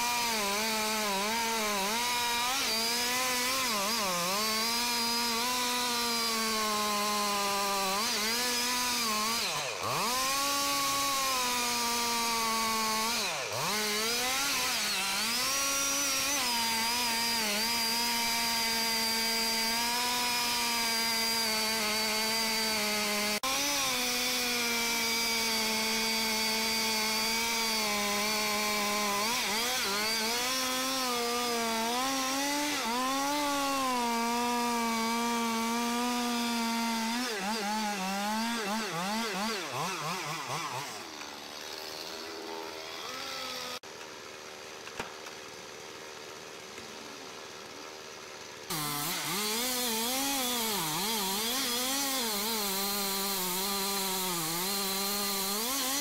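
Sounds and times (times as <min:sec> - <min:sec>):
chainsaw cutting tree trunk: 0:00.0 - 0:56.0.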